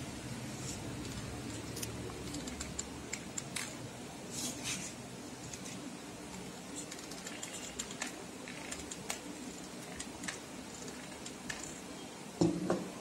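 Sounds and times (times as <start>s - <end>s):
knock on tabletop: 12.4s - 12.9s.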